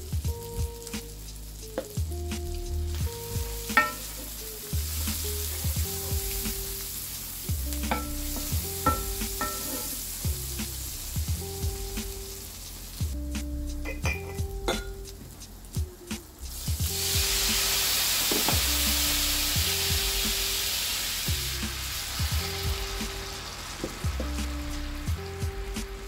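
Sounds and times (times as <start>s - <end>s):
food sizzling in a pan: 0.0s - 26.0s
wooden spoon tapping a pan: 3.7s - 4.1s, 7.9s - 9.9s, 13.8s - 15.0s.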